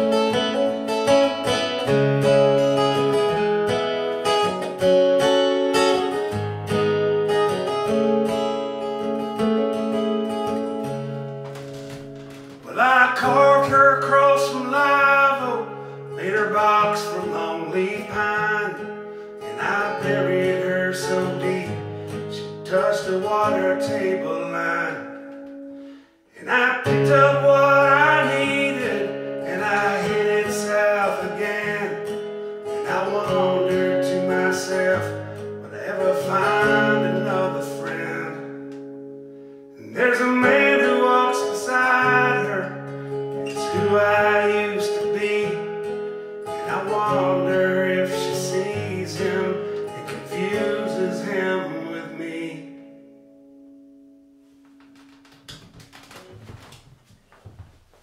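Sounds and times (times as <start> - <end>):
acoustic guitar folk song: 0.0 - 58.0
man singing: 11.8 - 25.6, 26.3 - 38.8, 39.8 - 53.0.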